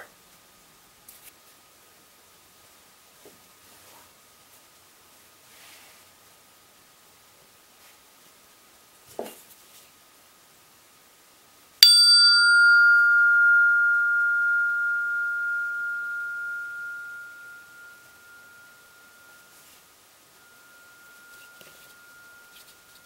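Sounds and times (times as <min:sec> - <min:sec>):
steel rail ringing like a bell: 0:11.8 - 0:19.6, 0:20.4 - 0:23.0.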